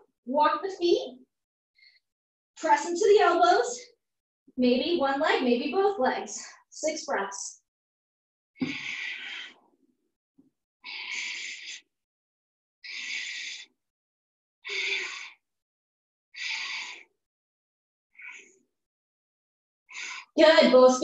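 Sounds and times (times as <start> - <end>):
person breathing loudly: 8.6 - 9.6, 10.9 - 11.8, 12.8 - 13.7, 14.7 - 15.4, 16.4 - 17.1.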